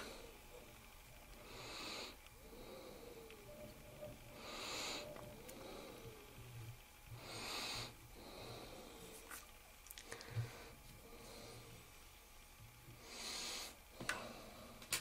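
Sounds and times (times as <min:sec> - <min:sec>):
person breathing through nose: 0:01.4 - 0:03.3, 0:04.3 - 0:06.3, 0:07.2 - 0:09.4, 0:10.0 - 0:11.8, 0:13.0 - 0:14.8.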